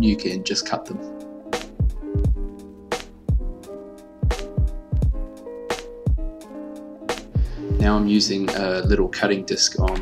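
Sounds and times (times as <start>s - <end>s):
drum beat with held chords: 1.6s - 6.5s, 7.1s - 9.1s, 9.8s - 10.0s.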